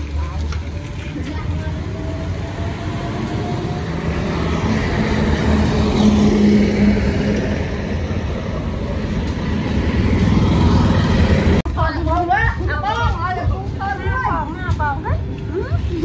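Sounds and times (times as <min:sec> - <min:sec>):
vehicle engine passing: 0:00.0 - 0:11.7.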